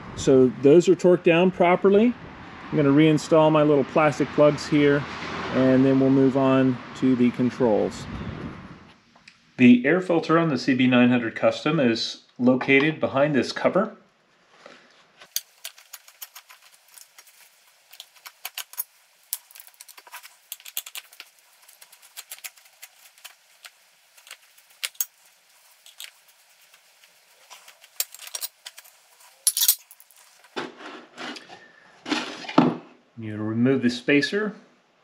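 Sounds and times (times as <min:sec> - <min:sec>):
allen key clicking on metal screws: 0:29.5 - 0:29.9.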